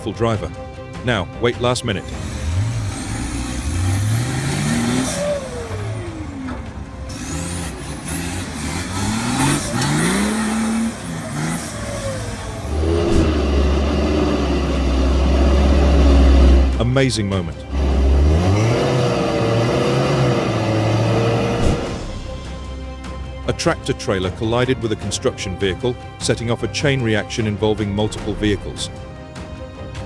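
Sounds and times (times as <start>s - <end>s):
truck engine revving: 2.0s - 23.9s.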